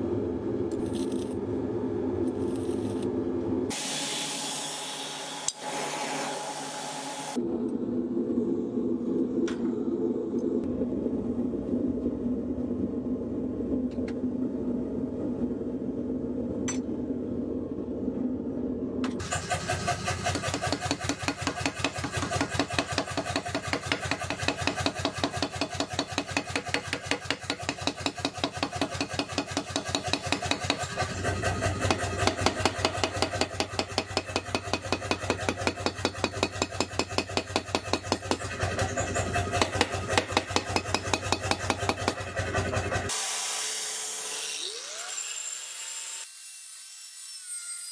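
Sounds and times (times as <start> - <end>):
low machine hum: 0.0 - 3.8, 6.4 - 43.1
forge humming: 0.0 - 43.1
power hammer pounding steel: 19.2 - 43.1.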